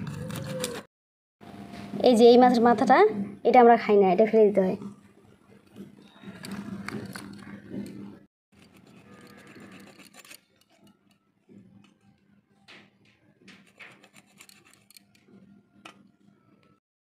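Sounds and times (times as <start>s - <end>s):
blade scraping through eel: 8.6s - 10.8s.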